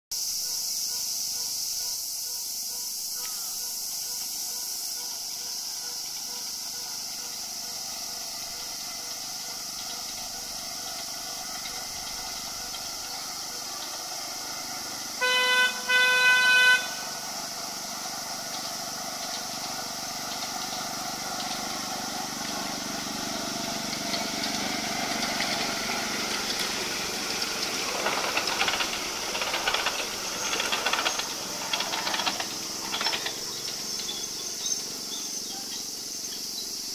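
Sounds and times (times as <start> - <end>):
high insect drone: 0.2 - 36.9
train wheels clattering on track: 0.4 - 36.9
train horn toots: 15.2 - 17.3.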